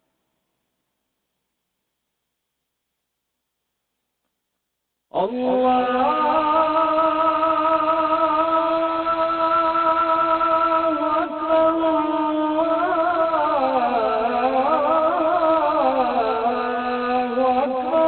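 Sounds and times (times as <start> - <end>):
man chanting call to prayer: 5.1 - 18.0.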